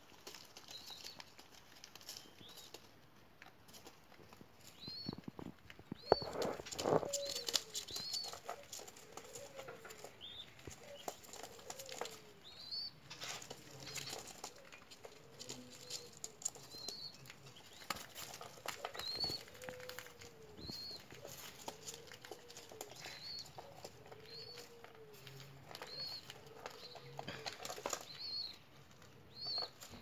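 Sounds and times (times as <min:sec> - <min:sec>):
wings fluttering: 0:04.6 - 0:12.4, 0:13.1 - 0:28.3
bird chick squeaking: 0:05.9 - 0:14.3.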